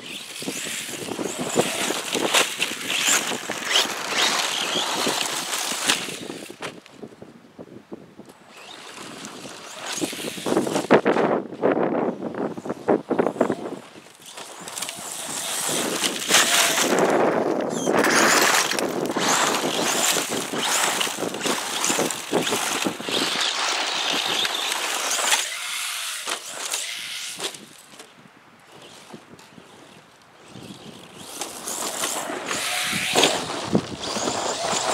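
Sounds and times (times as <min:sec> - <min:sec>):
radio-controlled truck motor whine: 0:00.0 - 0:06.6, 0:08.4 - 0:11.0, 0:13.2 - 0:27.6, 0:28.7 - 0:34.9
tyres spraying gravel: 0:00.1 - 0:06.6, 0:14.3 - 0:27.4.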